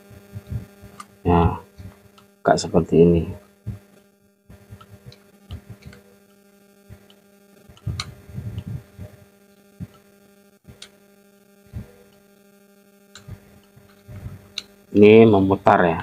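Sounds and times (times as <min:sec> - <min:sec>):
electrical hum: 0:00.0 - 0:16.0.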